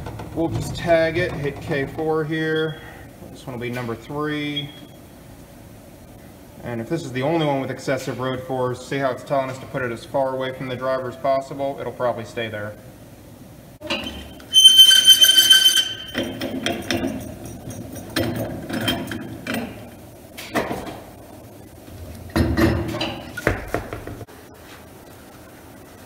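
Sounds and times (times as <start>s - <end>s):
loud steady high tone: 14.5s - 16.4s
metal clicks and clanks: 15.9s - 19.9s.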